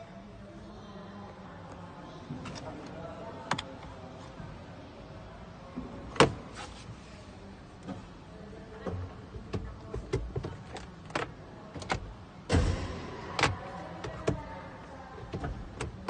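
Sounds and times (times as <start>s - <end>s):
hands clicking on plastic dashboard: 8.8s - 12.1s, 13.3s - 14.4s, 15.2s - 16.0s
loud thump: 12.5s - 13.4s.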